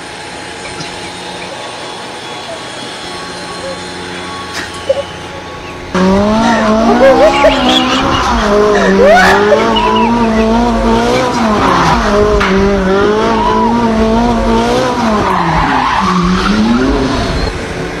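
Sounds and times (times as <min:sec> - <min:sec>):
tyres squealing: 0:00.6 - 0:12.2
car engine revving high: 0:00.8 - 0:18.0.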